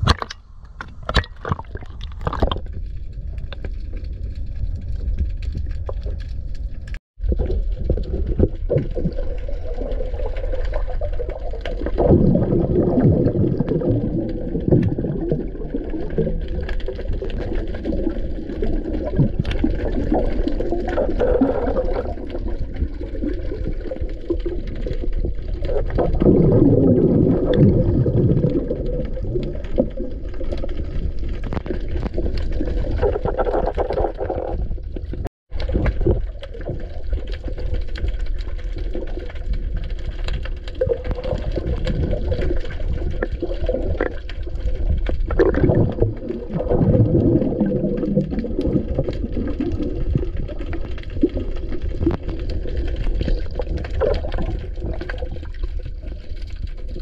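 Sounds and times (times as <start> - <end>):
underwater gurgling and bubbling: 0.0 - 57.0.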